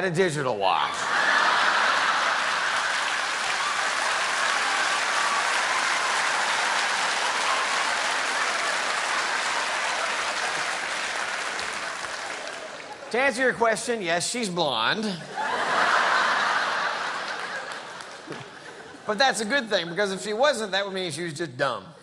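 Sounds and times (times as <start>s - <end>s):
audience laughing: 0.9s - 3.4s, 15.0s - 19.4s
audience applauding: 1.0s - 13.4s, 15.4s - 19.0s.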